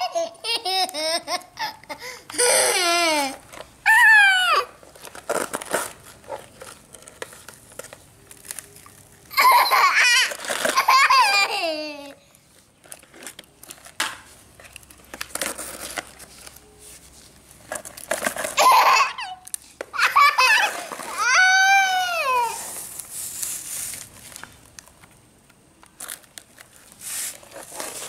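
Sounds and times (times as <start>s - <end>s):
toddler laughing and squealing: 0.0s - 4.8s, 9.3s - 12.2s, 18.6s - 22.9s.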